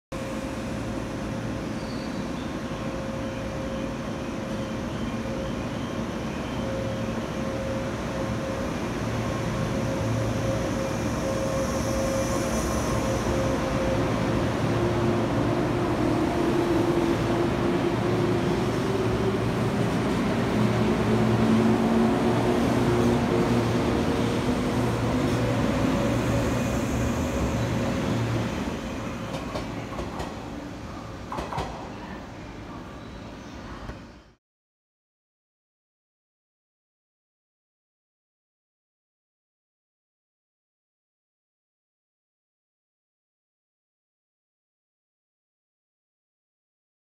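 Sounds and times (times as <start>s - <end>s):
faint train whine: 0.2s - 34.4s.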